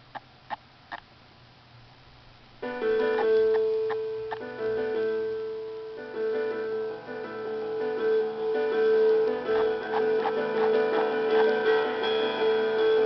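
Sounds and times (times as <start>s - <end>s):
piano music: 2.6s - 13.0s.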